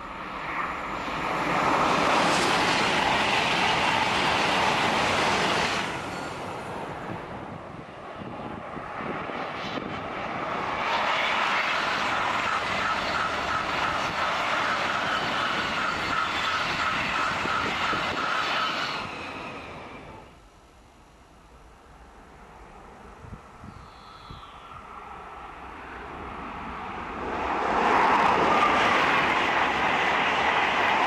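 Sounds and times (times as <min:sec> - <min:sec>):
train high whine: 0:00.0 - 0:20.7, 0:21.5 - 0:31.0
high-speed trains passing: 0:00.0 - 0:31.0.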